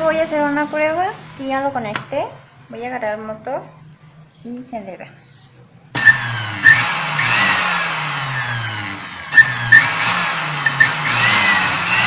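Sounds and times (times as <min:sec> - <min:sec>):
blender motor whining: 0:06.0 - 0:12.0.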